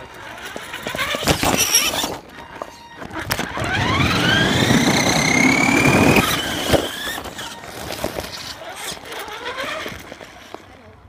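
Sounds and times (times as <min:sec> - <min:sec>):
toy truck motor whining: 0:00.0 - 0:11.0
low rolling rumble: 0:03.5 - 0:08.6.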